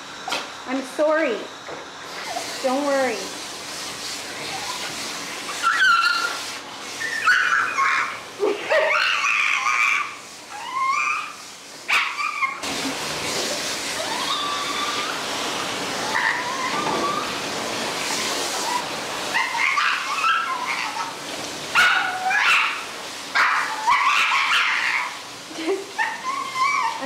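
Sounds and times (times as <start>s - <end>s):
shower sprayer hissing: 0.0s - 27.0s
dog whining and yelping: 4.4s - 12.6s, 13.9s - 15.3s, 16.0s - 17.4s, 18.2s - 21.2s, 21.8s - 25.2s, 25.9s - 27.0s.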